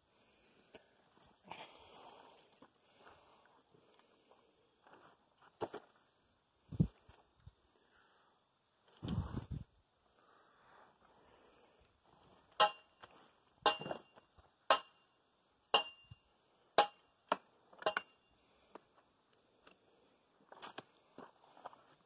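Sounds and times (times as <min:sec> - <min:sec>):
short metallic ring: 0:12.6 - 0:13.0, 0:13.7 - 0:17.1
footsteps clanking on metal grate: 0:13.7 - 0:14.1.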